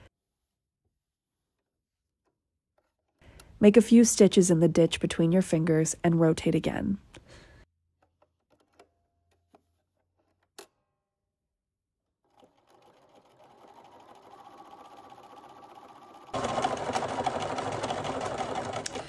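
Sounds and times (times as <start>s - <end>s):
sewing machine stitching: 12.2s - 19.0s.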